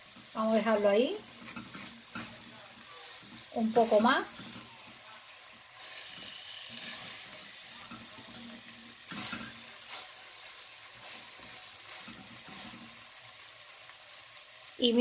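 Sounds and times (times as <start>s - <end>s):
sweet potato sizzling in a pot: 0.0s - 15.0s
spatula scraping a pot: 1.2s - 2.4s, 5.6s - 13.1s.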